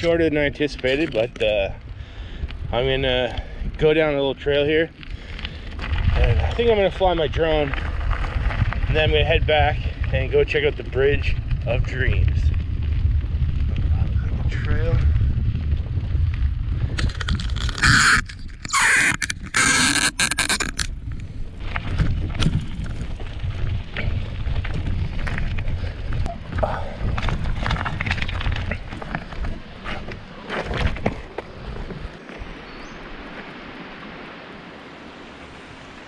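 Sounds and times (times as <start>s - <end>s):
wind rumbling on microphone: 0.0s - 36.0s
bicycle clicks and rattles: 16.8s - 19.6s, 20.4s - 32.0s.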